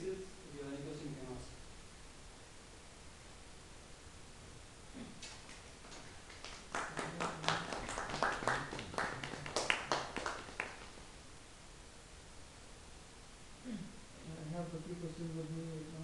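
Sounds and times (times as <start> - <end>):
audience clapping: 5.2 - 11.1.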